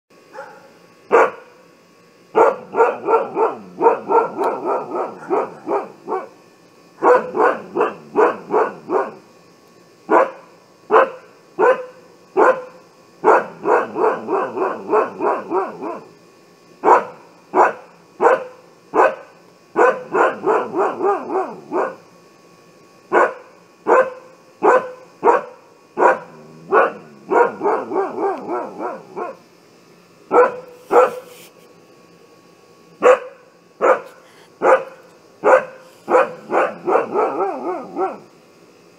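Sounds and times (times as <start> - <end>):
dog barking: 0.3 - 1.5, 2.4 - 6.4, 7.0 - 9.2, 10.1 - 16.1, 16.8 - 22.0, 23.1 - 29.4, 30.3 - 31.3, 33.0 - 38.2.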